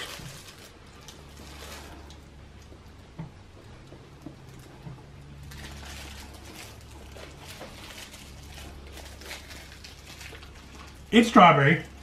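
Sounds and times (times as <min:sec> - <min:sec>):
plastic wrapper crinkling: 0:00.0 - 0:02.3, 0:04.4 - 0:12.0
faint low hum: 0:00.0 - 0:12.0.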